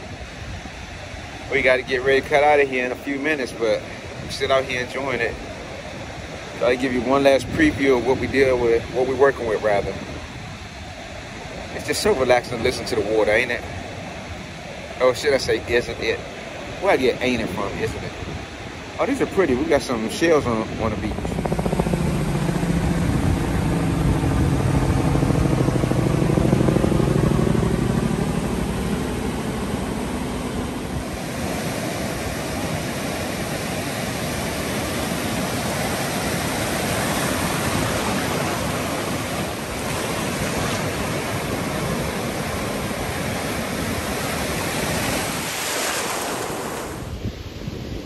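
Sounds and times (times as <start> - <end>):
ocean waves breaking on beach: 0.0 - 48.0
wind on microphone: 0.0 - 48.0
passing engine droning: 21.2 - 44.6.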